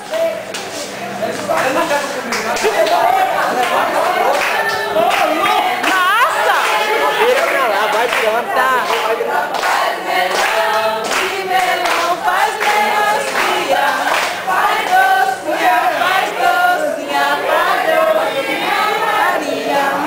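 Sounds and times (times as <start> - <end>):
hands clapping: 0.0 - 15.0
group singing together: 2.5 - 20.0.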